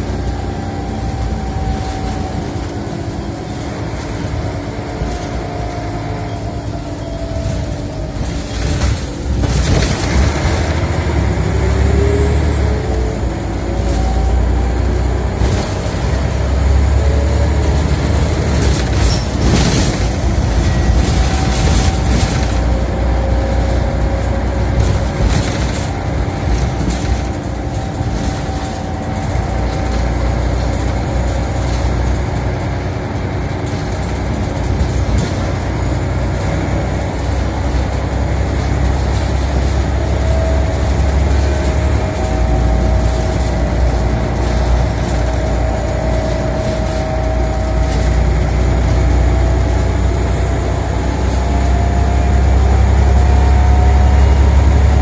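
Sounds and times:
rising whine: 0.0s - 31.6s
bus engine and road rumble: 0.0s - 55.0s
rattles: 15.4s - 55.0s.

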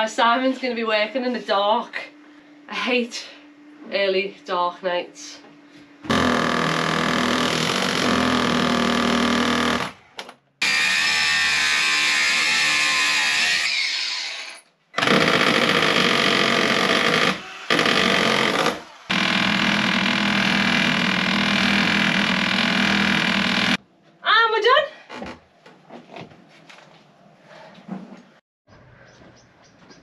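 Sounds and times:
electric power tool running: 10.6s - 23.8s.

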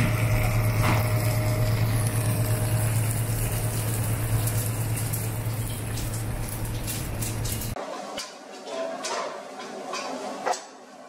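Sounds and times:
fish sizzling in oil: 0.0s - 7.8s
kitchen equipment hum: 0.0s - 11.0s.

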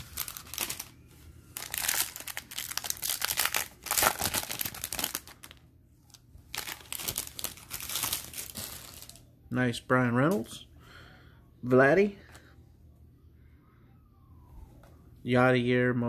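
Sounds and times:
foil wrapper crinkling and tearing: 0.0s - 1.0s, 1.6s - 9.2s.

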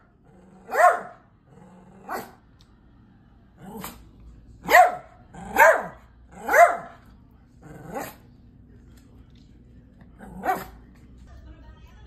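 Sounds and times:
small dog barking: 0.6s - 1.2s, 2.0s - 2.4s, 4.6s - 7.0s, 10.4s - 10.8s.

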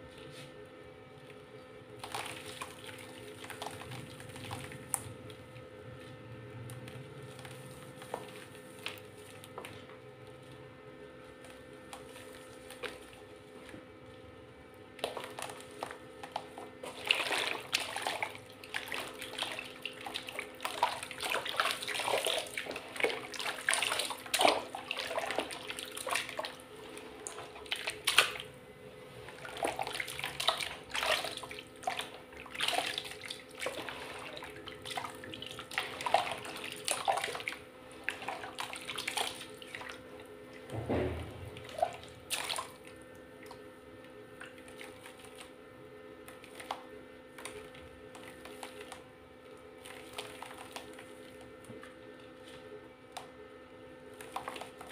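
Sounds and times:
hands squelching wet mud: 15.0s - 28.5s, 29.3s - 40.0s.

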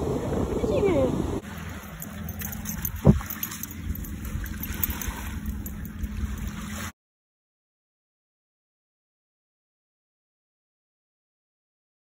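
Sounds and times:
wind buffeting microphone: 0.0s - 6.6s
sharp thump: 3.0s - 3.3s.

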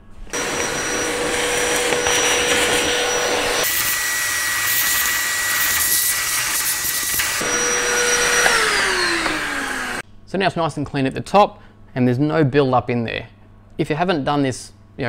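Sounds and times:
vacuum cleaner whine: 0.1s - 10.0s.

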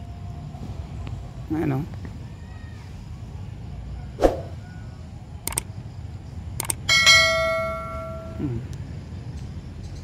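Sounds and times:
low outdoor rumble: 0.0s - 10.0s
clicks: 5.5s - 5.7s, 6.6s - 6.8s
bell chime: 6.9s - 8.4s.

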